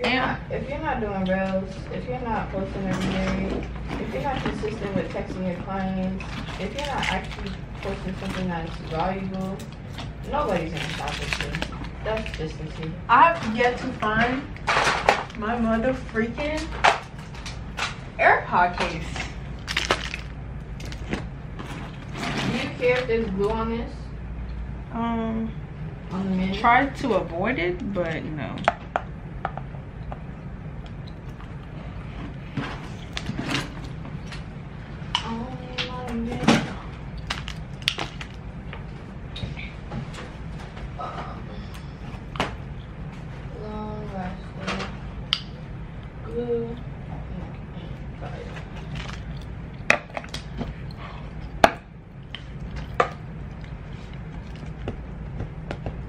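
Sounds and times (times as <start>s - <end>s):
low hum: 0.0s - 56.0s
items knocking and clicking: 18.7s - 23.1s.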